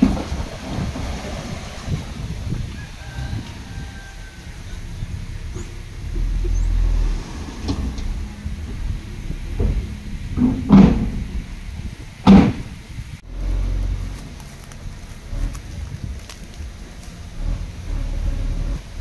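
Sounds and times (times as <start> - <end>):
heavy machinery diesel engine rumble: 0.0 - 19.0
loud clunks: 7.3 - 12.9.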